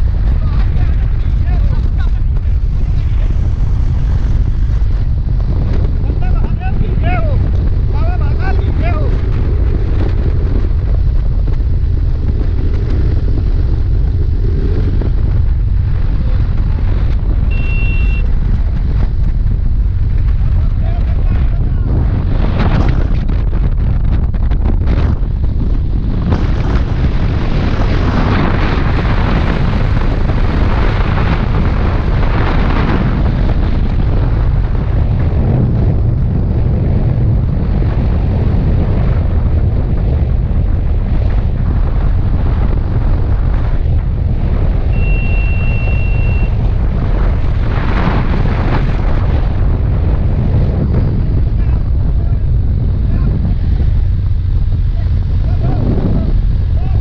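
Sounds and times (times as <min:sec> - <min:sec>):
wind blasting microphone: 0:00.0 - 0:57.0
motorcycle engine: 0:09.0 - 0:36.4
high steady tone: 0:17.5 - 0:18.3, 0:44.9 - 0:46.6.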